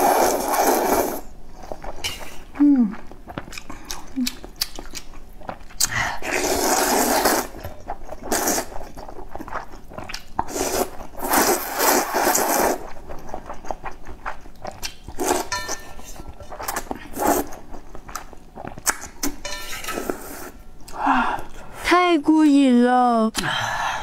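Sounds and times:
noodles slurped: 0.0s - 1.8s, 5.8s - 15.5s, 16.5s - 20.6s
wet chewing: 0.1s - 19.5s.

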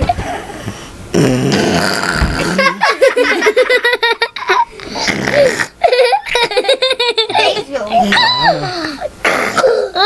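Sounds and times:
boys laughing: 2.4s - 9.2s.

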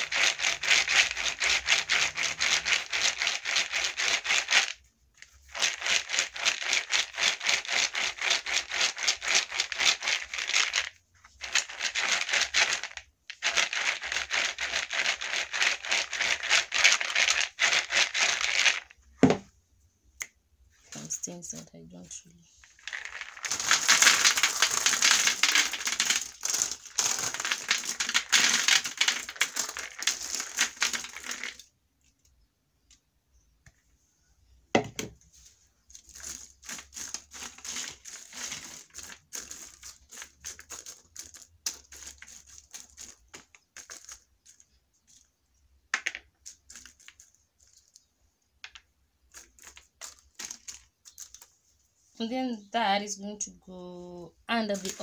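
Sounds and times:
nuts rattling onto tray: 5.4s - 18.9s, 22.6s - 31.7s, 35.9s - 45.3s, 45.9s - 51.5s, 54.7s - 55.0s
nuts rustling on foil: 22.6s - 31.7s, 35.8s - 45.3s, 46.4s - 48.1s, 49.3s - 51.5s, 54.5s - 55.0s.

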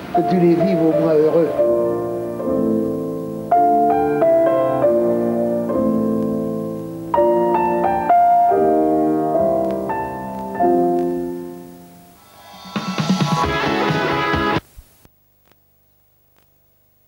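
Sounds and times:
solo piano music: 0.0s - 12.2s.

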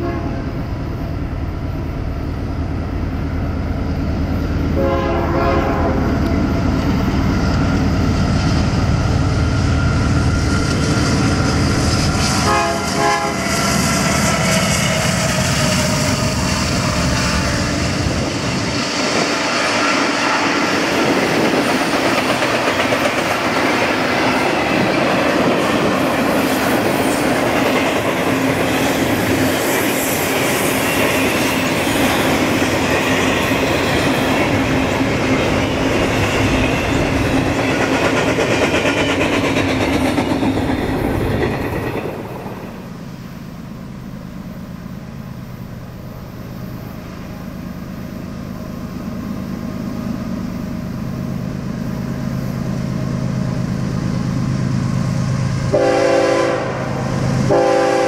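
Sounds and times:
locomotive horn: 0.0s - 0.6s, 4.8s - 6.2s, 12.3s - 13.6s, 55.7s - 58.0s
wheels clattering on rail: 5.6s - 42.9s.

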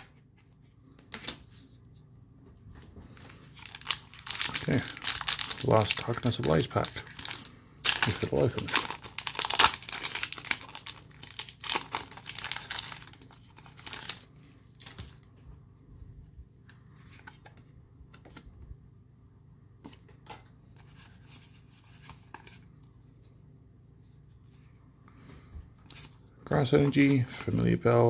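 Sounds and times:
cards rustling: 2.9s - 18.5s, 19.8s - 25.0s, 25.7s - 27.8s
foil wrapper crinkling: 3.5s - 15.3s.

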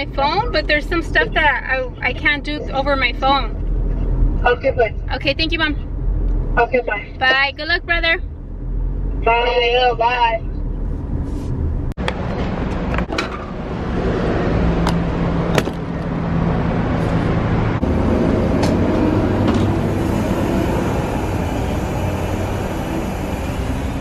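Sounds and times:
fuel pump rushing: 16.9s - 24.0s.

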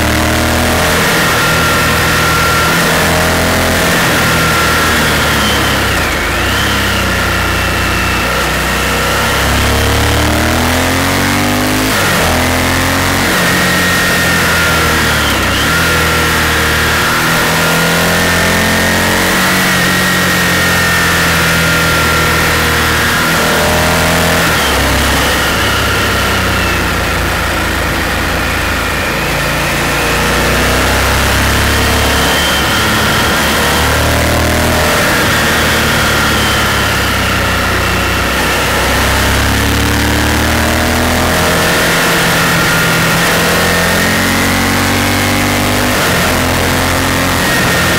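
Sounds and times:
motorcycle engine: 0.0s - 47.9s.

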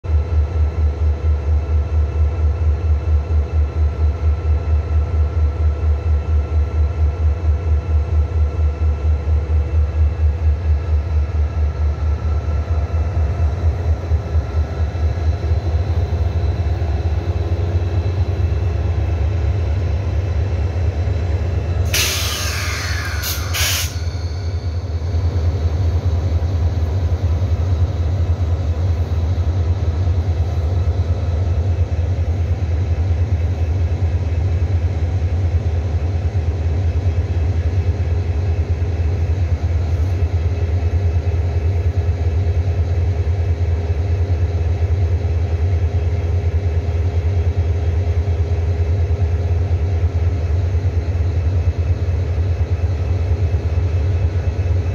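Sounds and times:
diesel locomotive engine throb: 0.1s - 54.9s
air brake hiss: 21.9s - 24.7s.

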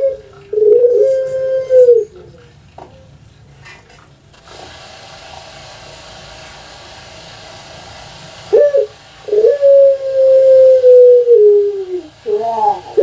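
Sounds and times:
dove cooing: 0.0s - 3.1s, 8.5s - 13.0s
faint hiss: 3.4s - 13.0s.

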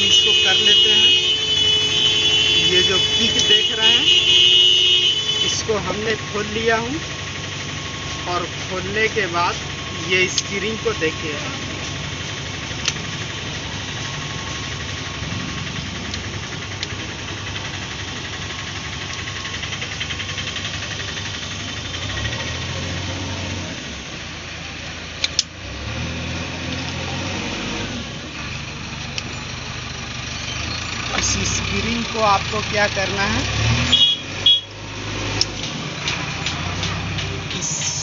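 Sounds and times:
engine idling: 0.0s - 27.3s, 27.9s - 38.0s
sharp click: 25.2s - 25.5s.

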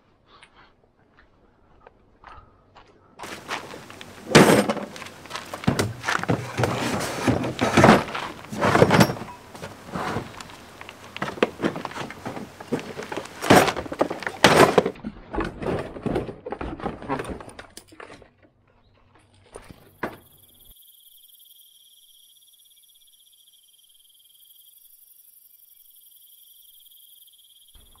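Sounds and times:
loud knocks: 3.2s - 15.0s
plastic cases clunking on wood: 3.2s - 17.4s.

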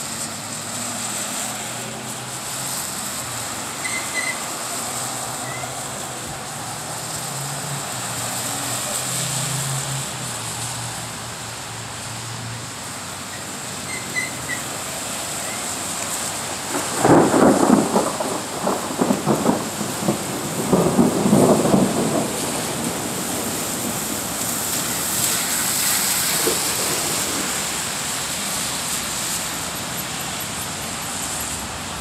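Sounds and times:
thunder rumbling: 14.4s - 28.6s.

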